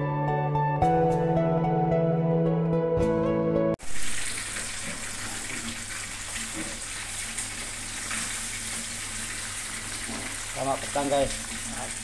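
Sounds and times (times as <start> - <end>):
soup boiling with bubbling hiss: 3.8 - 12.0.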